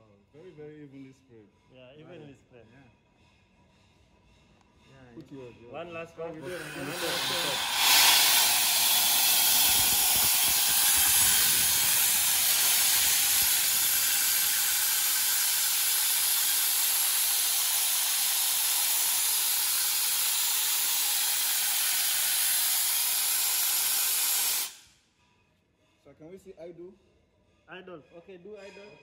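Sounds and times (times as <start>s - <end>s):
compressed air hissing: 6.4s - 24.9s.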